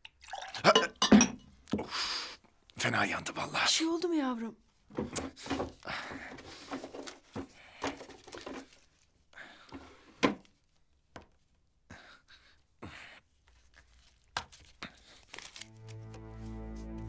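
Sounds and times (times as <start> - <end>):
rummaging in a drawer: 5.0 - 8.9.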